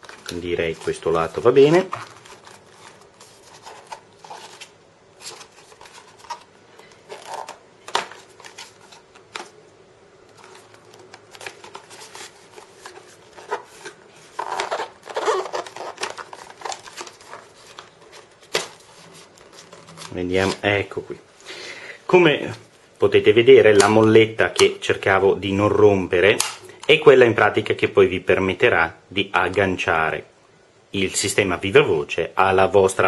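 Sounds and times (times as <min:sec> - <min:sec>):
cardboard and plastic packaging handled: 0:00.0 - 0:09.6, 0:10.2 - 0:21.2.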